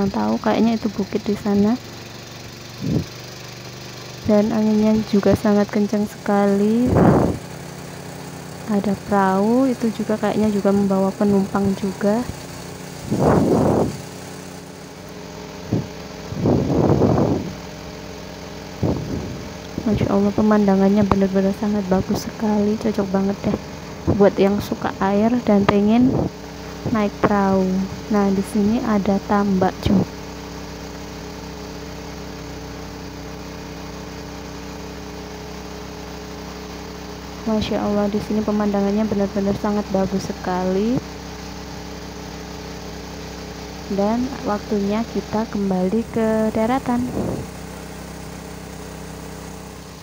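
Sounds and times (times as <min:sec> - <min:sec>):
motorboat engine running: 0:00.0 - 0:50.0
wind buffeting microphone: 0:02.8 - 0:03.1, 0:06.8 - 0:07.4, 0:13.0 - 0:14.0, 0:15.7 - 0:17.6, 0:18.8 - 0:20.1, 0:25.6 - 0:27.4, 0:46.7 - 0:47.5.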